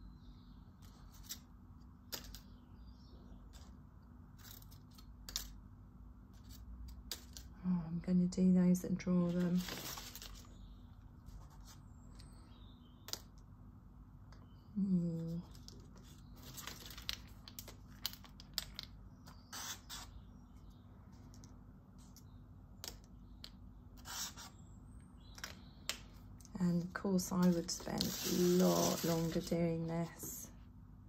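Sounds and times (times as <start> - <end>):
dry leaves and pens rustling: 9.2 - 10.6, 15.4 - 20.2, 26.7 - 30.4
marker pen drawing on paper: 24.0 - 24.6.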